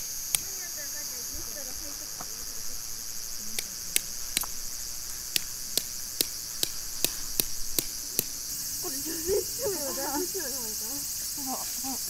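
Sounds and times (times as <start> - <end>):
insects droning: 0.0 - 12.0
tent pegs being hammered: 3.6 - 8.5.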